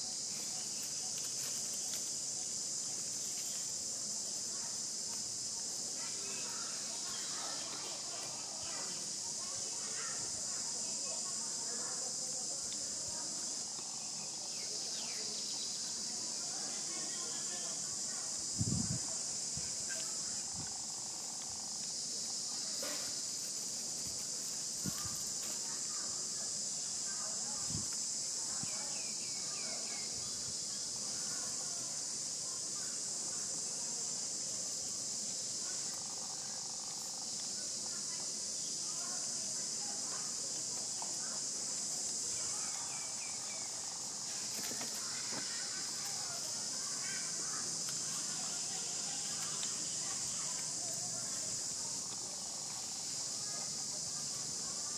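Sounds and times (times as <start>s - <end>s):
insect chorus drone: 0.0s - 54.9s.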